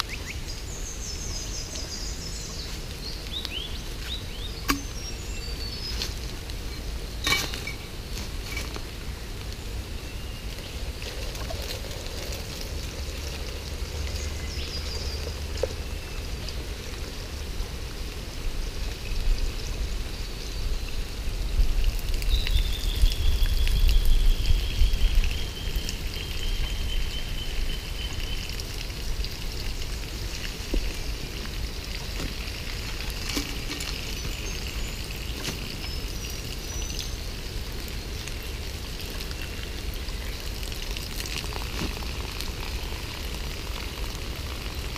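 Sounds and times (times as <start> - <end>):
water trickling through cloth: 7.6 - 17.1, 21.7 - 44.9.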